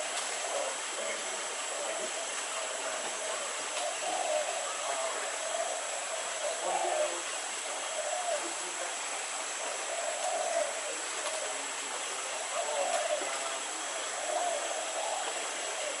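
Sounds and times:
forest ambience hiss: 0.0 - 16.0.

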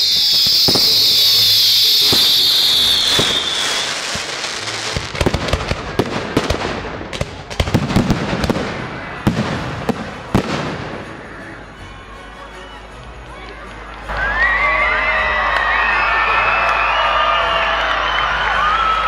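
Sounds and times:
firework shrill hiss: 0.0 - 5.1
fireworks bangs and crackles: 0.0 - 11.8.

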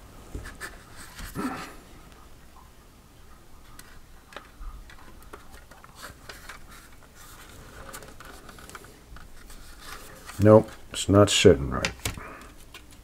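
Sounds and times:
plastic clicks and scraping: 3.6 - 10.8, 11.8 - 13.0.

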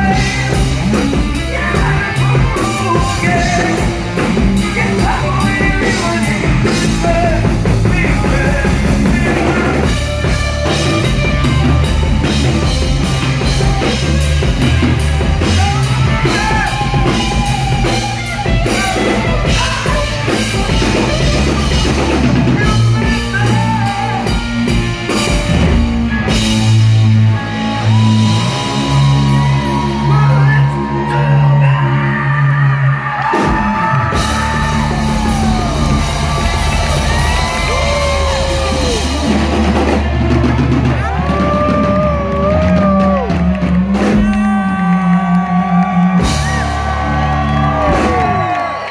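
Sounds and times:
man singing: 0.0 - 10.1, 15.4 - 24.6, 30.0 - 36.4
drum kit: 0.0 - 31.2, 33.0 - 48.9
electric guitar: 0.0 - 48.9.

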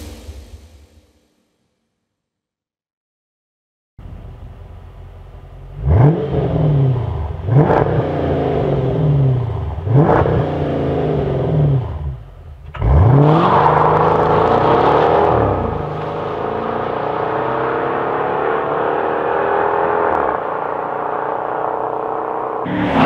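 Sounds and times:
car engine idling and revving: 4.0 - 23.0
car accelerating hard: 5.6 - 23.0.

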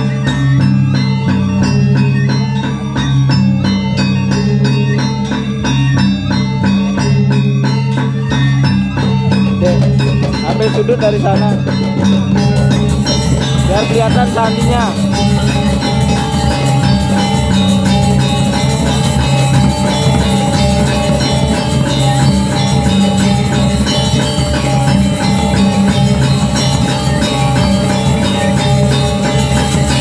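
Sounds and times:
drums: 0.0 - 30.0
metallophones ringing runs: 0.0 - 30.0.

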